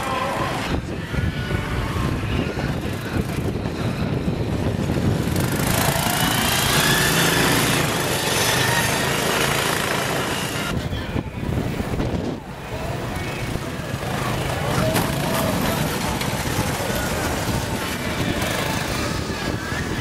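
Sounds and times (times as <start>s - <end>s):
single-cylinder engine revving: 5.1s - 10.7s.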